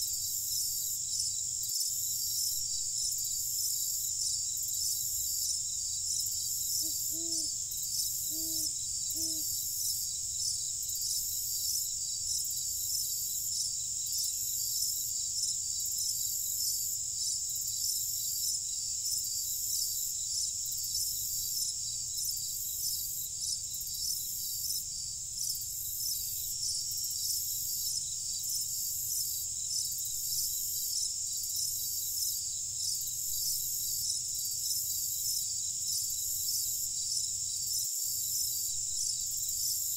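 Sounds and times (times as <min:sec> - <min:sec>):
crickets trilling: 0:00.0 - 0:39.9
owl hooting: 0:06.7 - 0:09.7.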